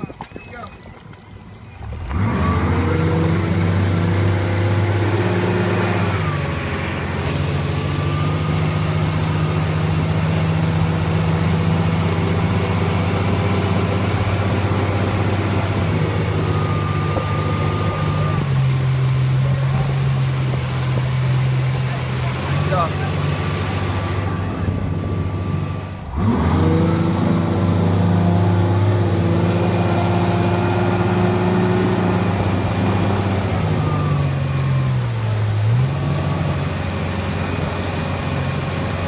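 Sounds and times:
wind noise: 0.0 - 2.1
motorboat engine: 0.0 - 39.0
rushing water: 0.0 - 39.0.

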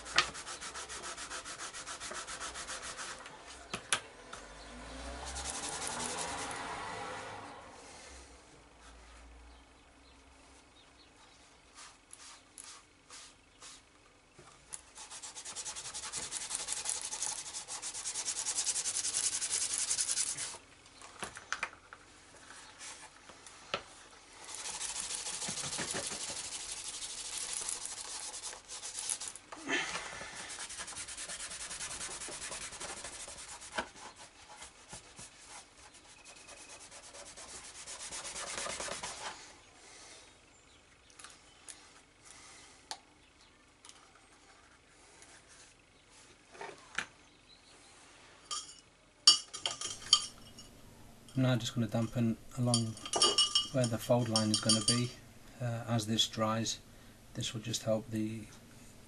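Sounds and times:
cloth rubbing leather edge: 15.0 - 20.6, 30.4 - 39.2.

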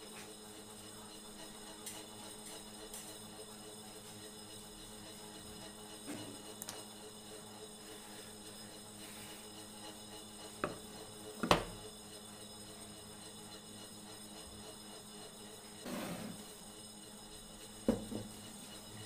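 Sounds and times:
wood knocking on table: 11.4 - 11.8, 17.9 - 18.3.

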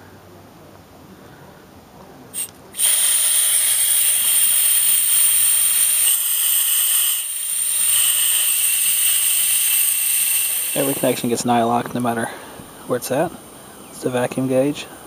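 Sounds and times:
gas hissing from valve: 2.3 - 15.0.

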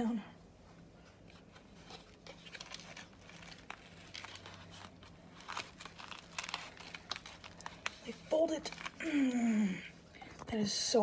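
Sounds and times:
low steady hum: 0.0 - 11.0
hands handling a tortilla: 1.0 - 9.0.

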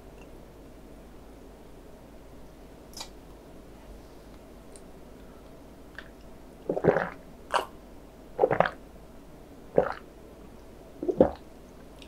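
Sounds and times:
person gulping a drink: 6.7 - 7.7, 8.4 - 8.8, 9.8 - 10.0, 11.0 - 11.4.

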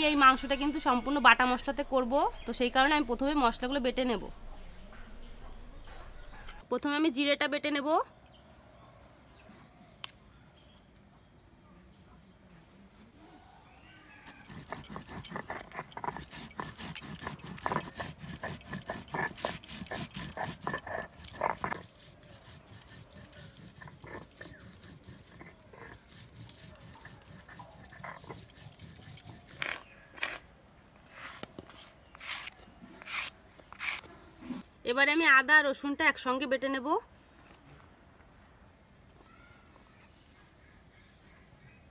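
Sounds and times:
scraping paste on stone: 14.1 - 30.4, 31.1 - 34.6
stone grinding seeds: 14.2 - 30.4.

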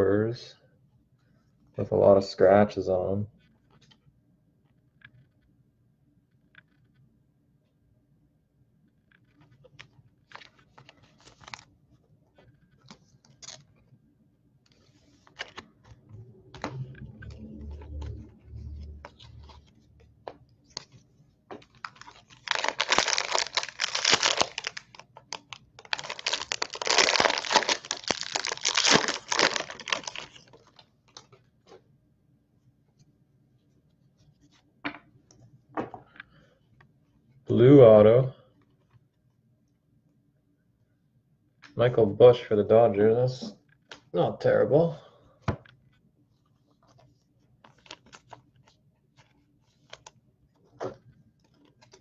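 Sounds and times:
cards rustling: 9.2 - 11.7, 12.4 - 13.9, 14.7 - 31.8, 46.5 - 52.0
foil pack tearing: 21.8 - 25.0, 25.8 - 30.5.

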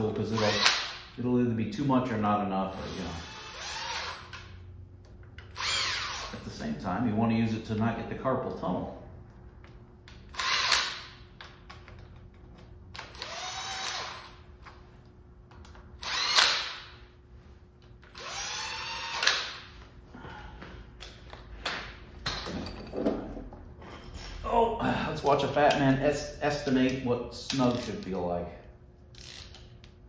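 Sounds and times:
cordless power driver spinning: 2.7 - 4.5, 5.4 - 6.4, 13.0 - 14.4, 16.0 - 16.8, 18.1 - 19.6.

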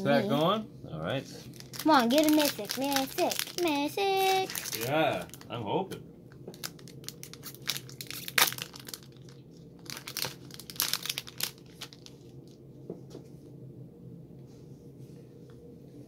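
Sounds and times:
foil wrapper crinkling and tearing: 1.4 - 5.5, 6.5 - 12.3.

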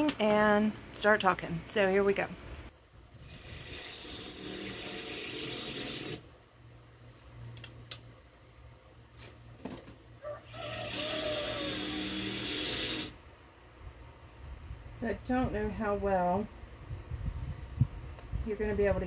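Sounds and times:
power tool running: 3.3 - 6.2, 10.6 - 13.2.

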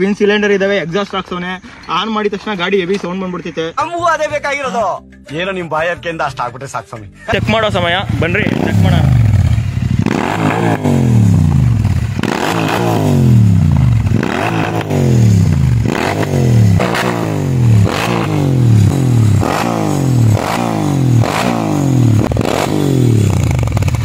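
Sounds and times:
motorcycle engine revving: 7.3 - 24.0.

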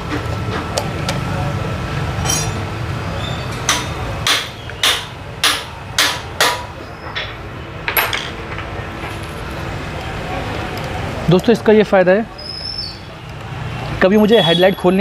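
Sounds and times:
tool clinking on metal bolt: 2.2 - 2.6.

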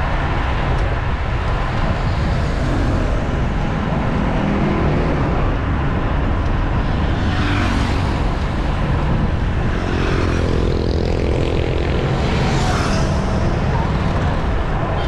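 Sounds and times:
wind rushing over microphone: 0.0 - 15.0
motor traffic passing: 2.0 - 15.0.

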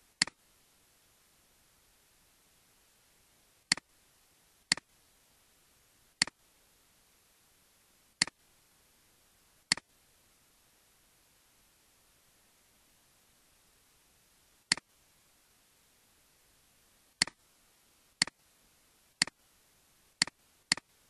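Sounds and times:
computer mouse clicking: 9.7 - 9.9, 20.2 - 20.9.

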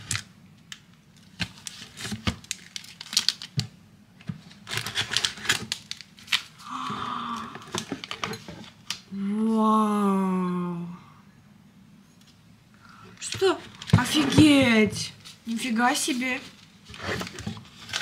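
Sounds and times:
plastic wrappers crinkling: 1.1 - 3.7, 4.4 - 6.7, 15.2 - 18.0
drawn-out vocal ooh: 6.6 - 7.8.

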